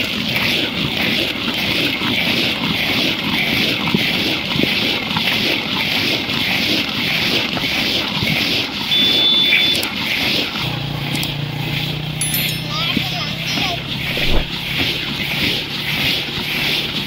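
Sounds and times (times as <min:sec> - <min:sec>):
clay pot scraping in pan: 0:13.1 - 0:17.0.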